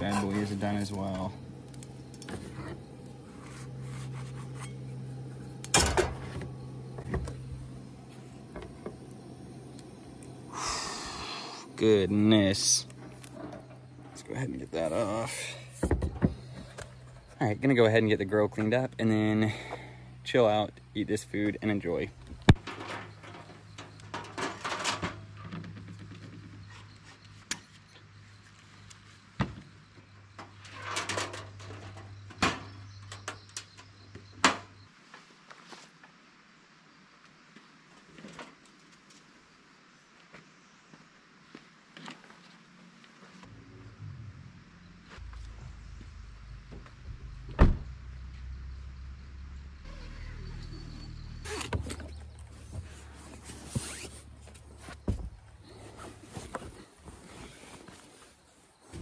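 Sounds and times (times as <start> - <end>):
camp grill scraping and clattering: 0.0 - 10.4, 11.8 - 17.4, 22.5 - 27.2, 30.4 - 34.0.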